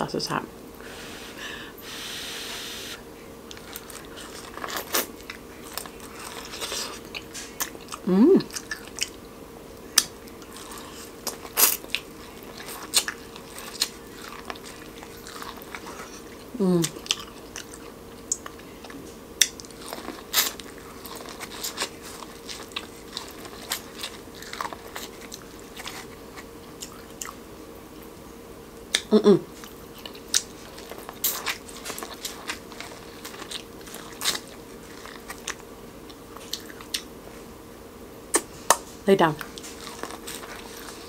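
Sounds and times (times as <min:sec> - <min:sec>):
wet chewing: 0:03.5 - 0:09.2, 0:09.8 - 0:27.4, 0:28.9 - 0:37.1, 0:38.3 - 0:41.0
crisp crunches of biting corn: 0:30.0 - 0:35.6.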